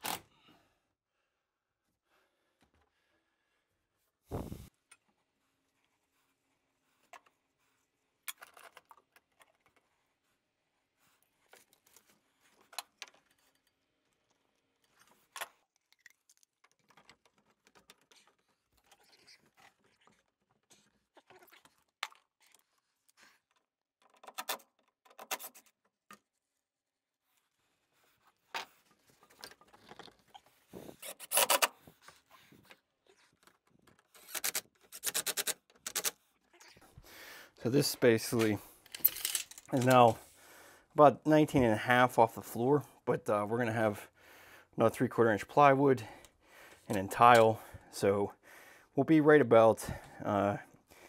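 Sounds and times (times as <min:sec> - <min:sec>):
clicks and taps handling pipe: 0:08.2 - 0:10.2, 0:11.2 - 0:20.6.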